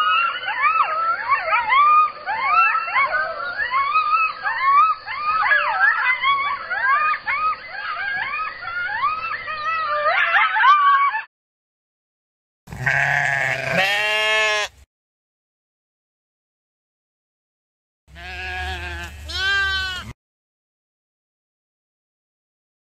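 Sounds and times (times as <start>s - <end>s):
coyotes yipping and howling: 0.0s - 11.3s.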